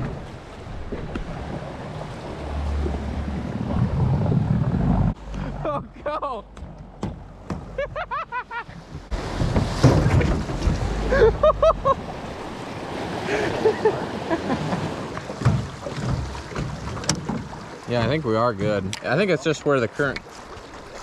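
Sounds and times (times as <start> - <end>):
wind on microphone: 0.0 - 5.6.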